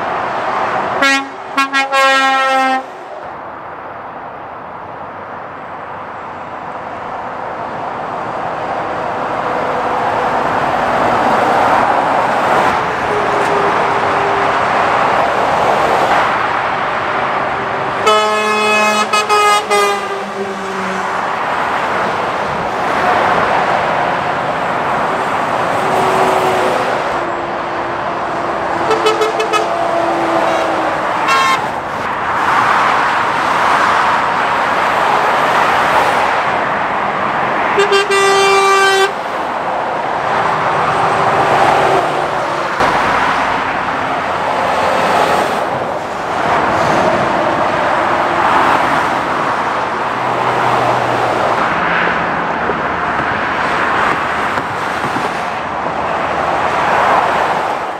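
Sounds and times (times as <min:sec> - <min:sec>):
lorries passing on motorway: 0:00.0 - 0:57.9
truck air horn: 0:01.0 - 0:03.0, 0:18.0 - 0:21.2, 0:28.8 - 0:31.8, 0:37.7 - 0:39.2
short horn toots: 0:18.1 - 0:20.3, 0:30.4 - 0:31.7.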